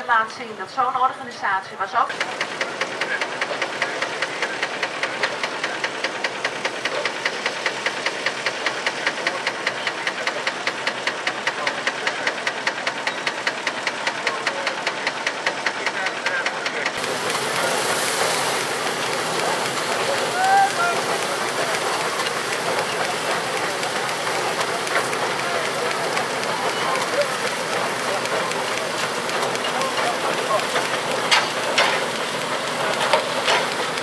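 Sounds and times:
old engine knocking steadily: 0:02.1 - 0:34.0
threshing machine clatter: 0:02.1 - 0:34.0.

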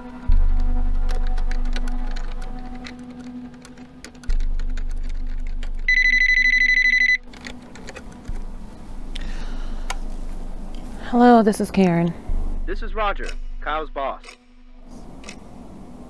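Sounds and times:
keyboard typing clicks: 0:00.5 - 0:08.5
telephone electronic ring: 0:05.9 - 0:07.3.

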